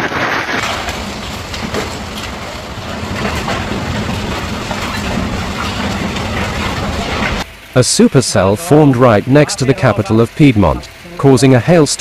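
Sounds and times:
hail and rain clattering: 0.0s - 12.0s
low rumble: 0.5s - 7.7s.

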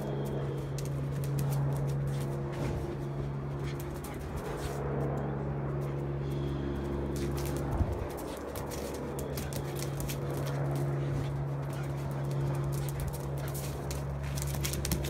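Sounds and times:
low hum: 0.0s - 15.0s
dog claws clicking on tiles: 7.2s - 15.0s.

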